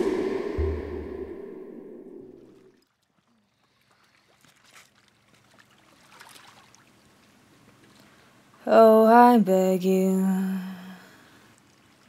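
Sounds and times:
low musical drone: 0:00.0 - 0:02.5
trickling water: 0:02.7 - 0:08.6, 0:11.2 - 0:12.0.

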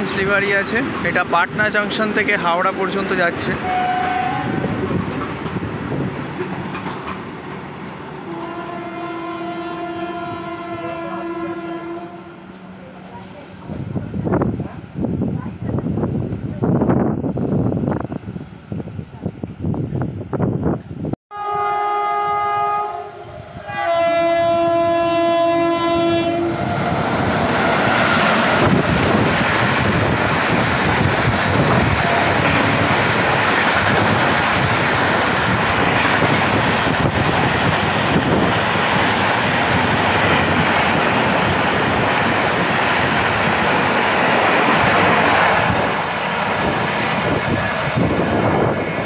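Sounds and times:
wheels clacking over rail joints: 0:00.0 - 0:11.0, 0:26.6 - 0:48.9
train rushing past: 0:00.0 - 0:19.3, 0:23.0 - 0:49.0
train horn blast: 0:03.6 - 0:04.6, 0:08.3 - 0:12.5, 0:21.3 - 0:26.9.

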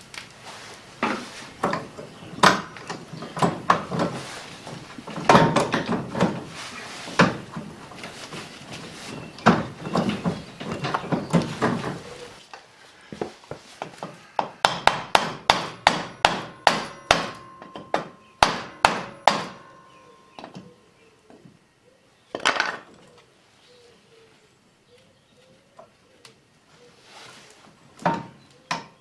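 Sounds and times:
clattering: 0:01.0 - 0:12.3, 0:15.7 - 0:20.6
hammer striking wooden block: 0:14.6 - 0:19.9.

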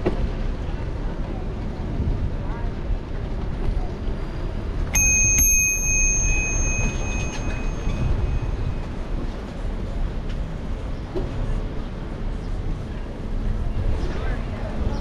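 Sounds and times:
street noise: 0:00.0 - 0:15.0
wind: 0:00.0 - 0:15.0
bicycle bell ringing: 0:04.9 - 0:09.1.

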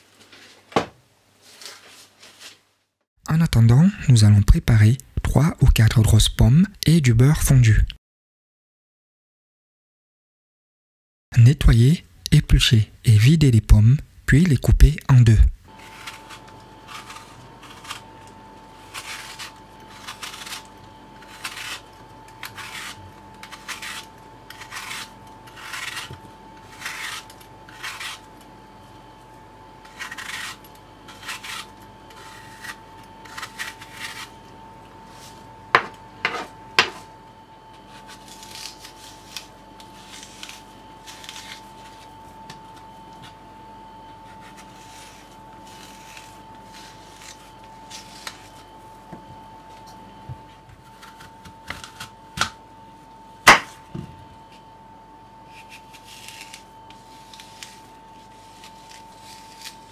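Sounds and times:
faint high hum: 0:11.4 - 0:59.9
peeler scraping apple skin: 0:15.7 - 0:28.9, 0:29.7 - 0:37.1, 0:37.7 - 0:43.4, 0:44.1 - 0:49.1, 0:50.8 - 0:52.5, 0:55.4 - 0:59.9.

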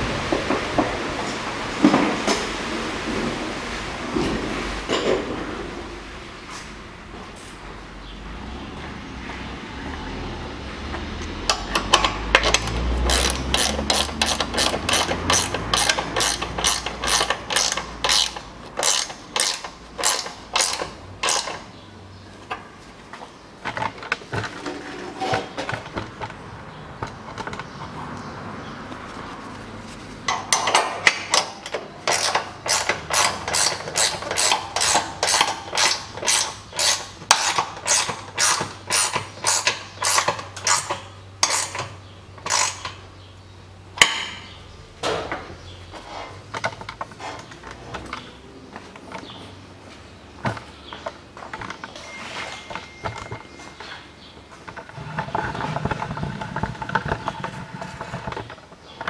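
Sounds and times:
ratcheting wrench clicking: 0:11.5 - 0:21.7, 0:30.3 - 0:43.0.

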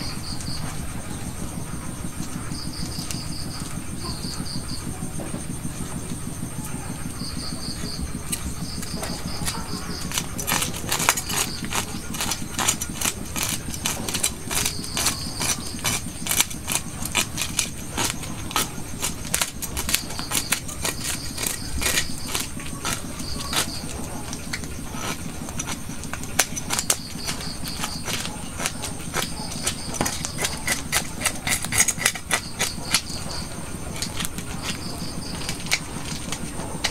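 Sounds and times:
steady low hum: 0:00.0 - 0:36.9
cleaver scraping fish scales: 0:07.8 - 0:36.9.

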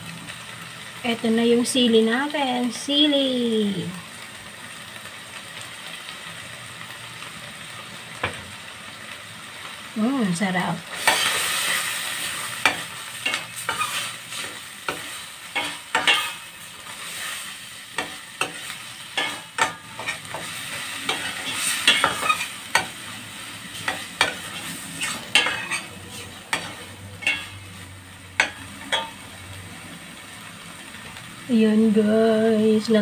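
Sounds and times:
food sizzling: 0:00.0 - 0:33.0
metal spoon scraping a pan: 0:10.9 - 0:27.8, 0:28.4 - 0:29.2.

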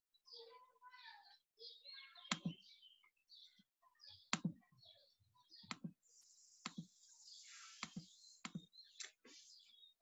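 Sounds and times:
computer mouse clicks: 0:02.3 - 0:02.6, 0:05.6 - 0:05.9, 0:06.6 - 0:06.9, 0:07.8 - 0:09.2.

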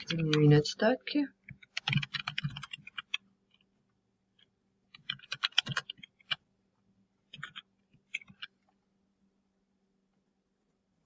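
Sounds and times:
keyboard typing: 0:01.4 - 0:03.7, 0:04.3 - 0:06.4, 0:07.2 - 0:08.8.

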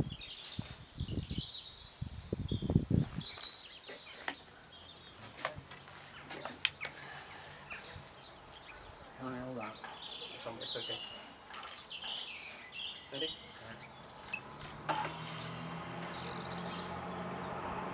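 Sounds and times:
wind rumble on microphone: 0:00.0 - 0:03.5
small birds chirping: 0:00.0 - 0:17.9.

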